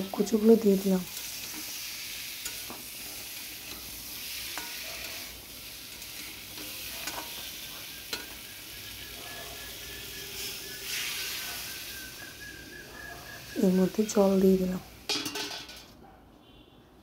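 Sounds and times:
food sizzling in hot oil: 0.0 - 15.9
metal spatula knocking pan: 15.1 - 15.8.

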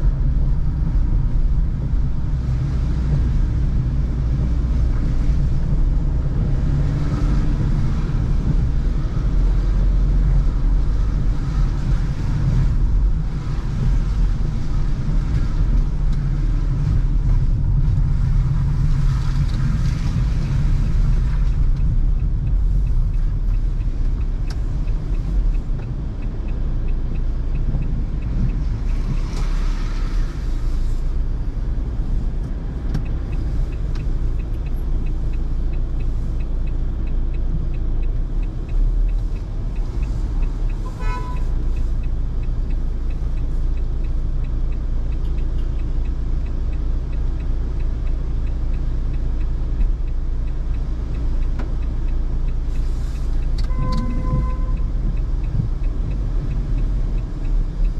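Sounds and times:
car engine and road rumble: 0.0 - 57.9
faint even ticking: 0.3 - 57.9
tyres hissing on wet road: 28.4 - 36.4, 51.1 - 54.8.

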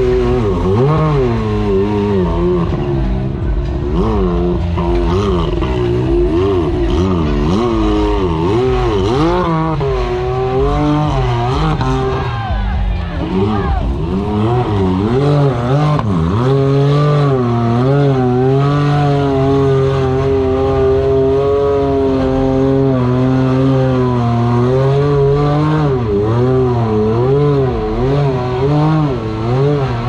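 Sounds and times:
engine revving hard: 0.0 - 30.0.

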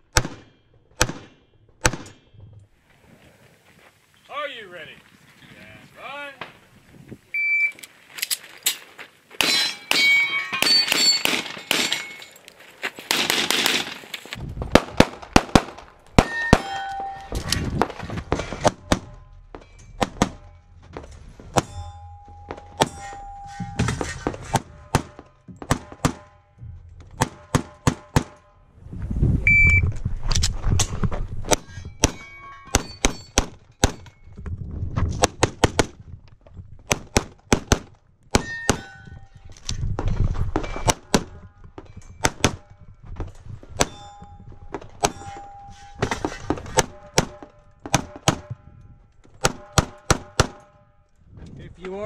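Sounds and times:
low rumbling movement noise: 14.4 - 16.2, 26.5 - 32.6.

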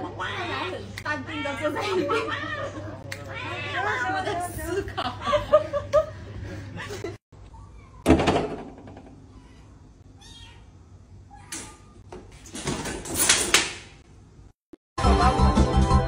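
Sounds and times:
cat meowing: 9.3 - 10.7.

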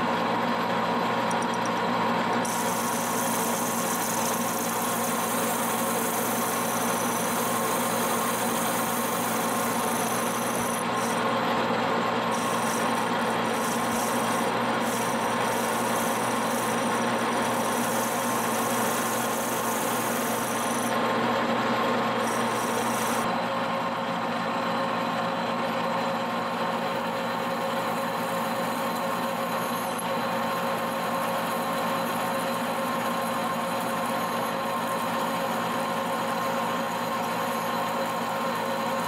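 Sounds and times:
lathe machine drone: 0.2 - 39.0
hiss of cutting: 2.5 - 11.2, 12.3 - 21.0, 22.2 - 23.2.

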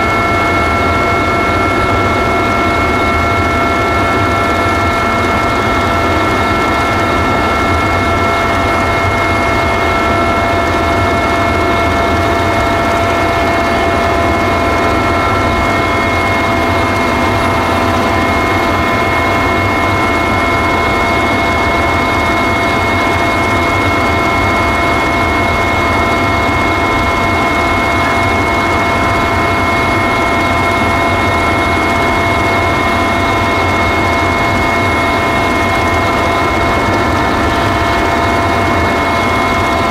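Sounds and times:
helicopter rotor and engine rumble: 0.0 - 39.9
high turbine whine: 0.0 - 39.9.

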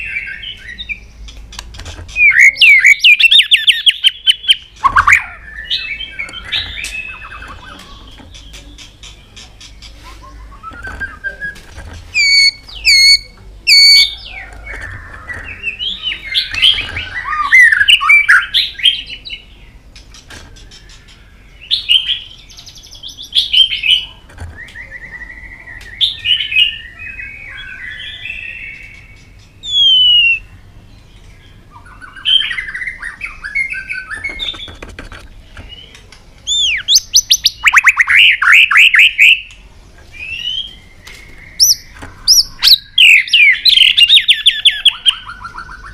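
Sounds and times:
bird singing whistled song: 2.2 - 7.8, 10.3 - 11.6, 12.2 - 14.5, 15.2 - 19.2, 21.6 - 30.6, 35.7 - 39.5, 40.1 - 45.9.

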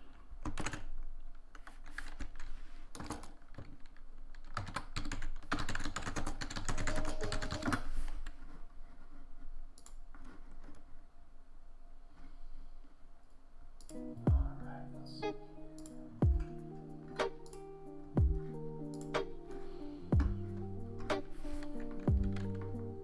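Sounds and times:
typing on computer keyboard: 0.4 - 7.9.

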